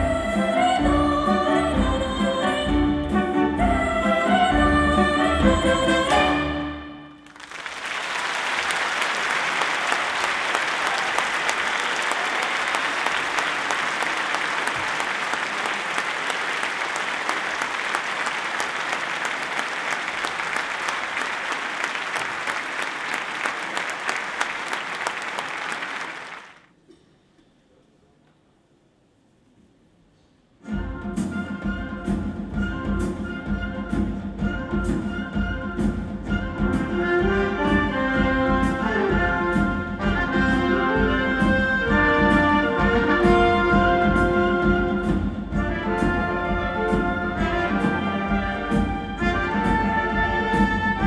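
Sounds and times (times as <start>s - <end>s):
audience applauding: 7.2s - 26.7s.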